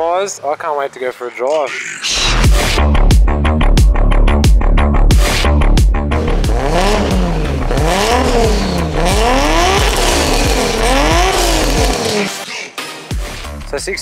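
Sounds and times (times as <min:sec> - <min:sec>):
car engine revving: 0:05.1 - 0:12.5.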